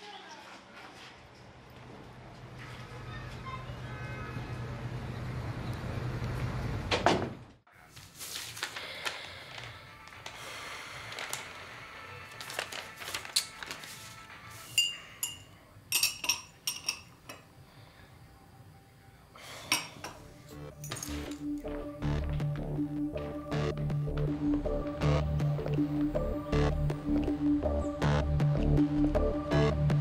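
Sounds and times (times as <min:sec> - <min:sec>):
quiet background music: 0:07.7 - 0:30.0
teaspoon clinking in cup: 0:14.8 - 0:17.4.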